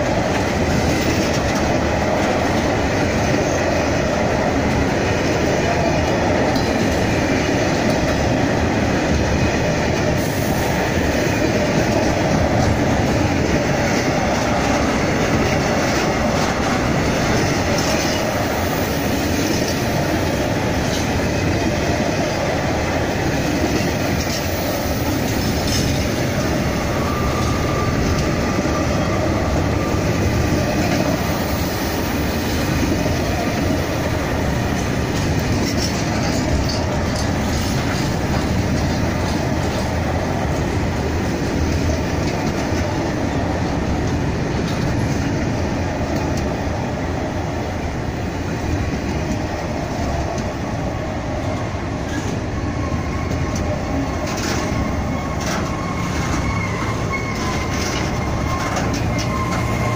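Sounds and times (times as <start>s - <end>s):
train wagons rumbling on rail: 0.0s - 59.9s
faint wheel squeal: 54.6s - 59.9s.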